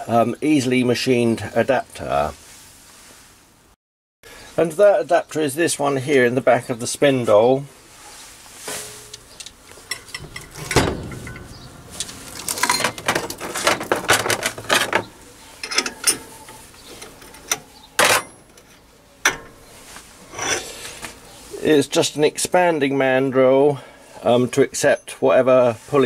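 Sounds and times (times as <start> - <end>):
metallic clicks and clinks: 8.9 - 15.0, 15.6 - 18.7
spanner loosening nut: 8.9 - 19.6.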